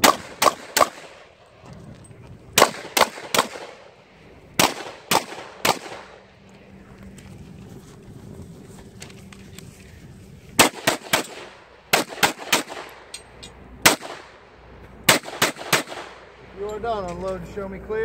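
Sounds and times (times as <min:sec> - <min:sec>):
pistol shots with echo: 0:00.0 - 0:01.3, 0:02.6 - 0:03.9, 0:04.6 - 0:06.2, 0:10.6 - 0:13.0, 0:13.8 - 0:14.4, 0:15.1 - 0:16.2.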